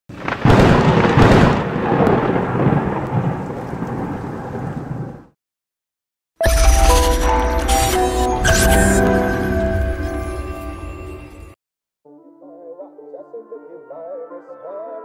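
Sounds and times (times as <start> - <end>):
crackling rumble: 0.1 - 5.3
music: 6.4 - 15.0.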